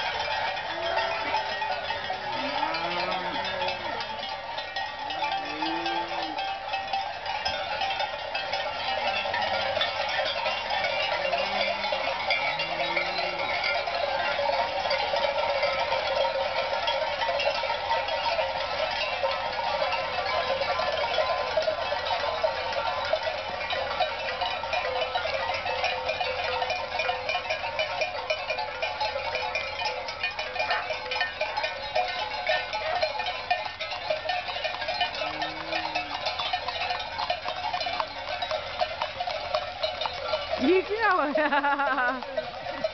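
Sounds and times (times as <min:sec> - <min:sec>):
cowbells clanking: 0:00.0 - 0:42.9
cattle mooing: 0:00.6 - 0:04.1, 0:05.2 - 0:06.5, 0:11.3 - 0:13.5, 0:35.0 - 0:36.4.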